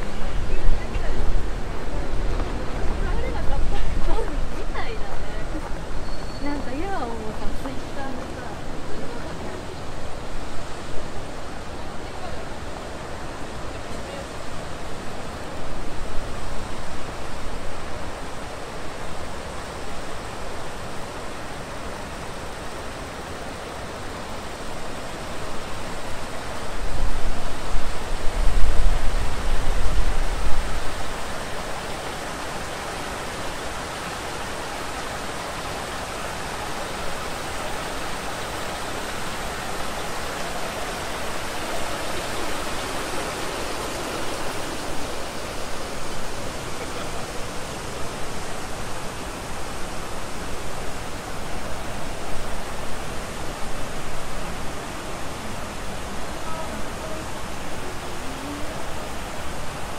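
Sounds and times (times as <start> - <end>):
wind buffeting microphone: 0.0 - 11.8, 25.6 - 32.0
water rushing and trickling: 0.0 - 59.9.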